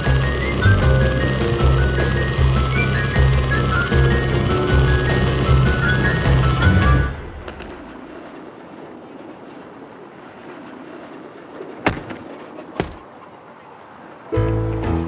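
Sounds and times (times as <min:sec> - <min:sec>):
busy street hum: 0:00.0 - 0:15.0
tram on rails: 0:00.0 - 0:15.0.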